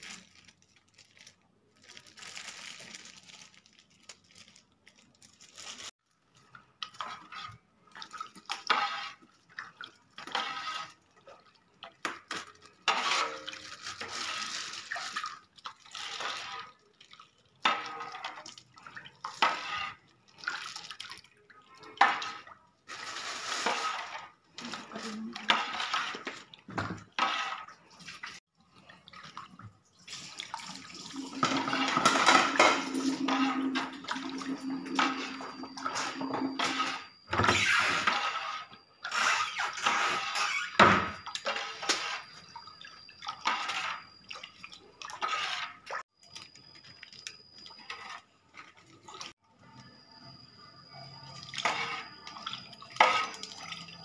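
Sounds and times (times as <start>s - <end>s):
liquid sloshing in a wok: 5.8s - 37.2s, 38.0s - 50.3s, 50.9s - 54.0s
metal ladle scraping and knocking pan: 12.8s - 14.0s.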